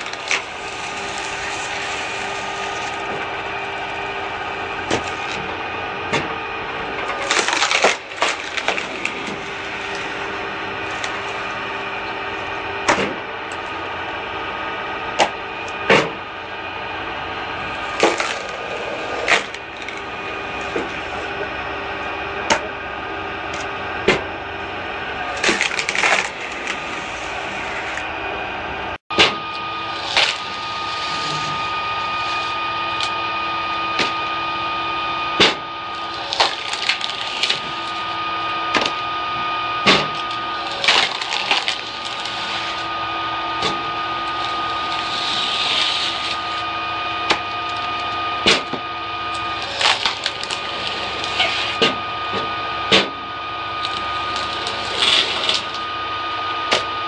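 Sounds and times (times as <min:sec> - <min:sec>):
wood cracking and splintering: 0:00.0 - 0:13.7, 0:17.6 - 0:21.4, 0:25.2 - 0:28.1, 0:29.9 - 0:33.2, 0:35.4 - 0:39.0, 0:39.8 - 0:42.9, 0:47.3 - 0:52.0, 0:52.9 - 0:55.8
electric motor humming: 0:00.0 - 0:57.0.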